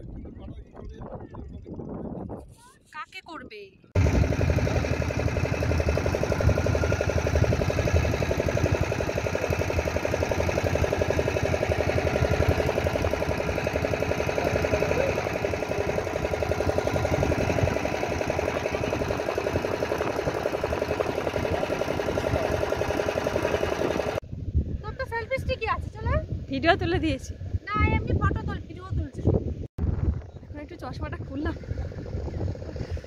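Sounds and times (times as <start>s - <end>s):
motorboat engine running: 4.0s - 24.2s, 30.2s - 33.0s.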